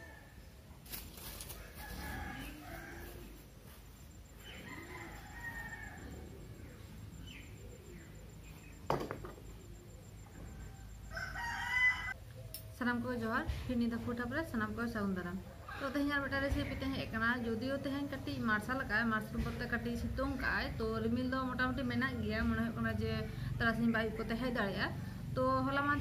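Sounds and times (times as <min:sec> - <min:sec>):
rooster crowing: 0:00.0 - 0:00.5, 0:01.4 - 0:03.7, 0:04.4 - 0:06.8, 0:10.3 - 0:12.2.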